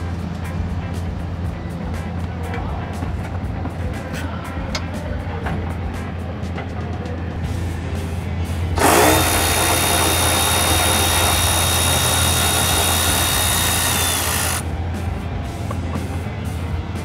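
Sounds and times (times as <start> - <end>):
power tool motor whine: 8.8 - 14.6.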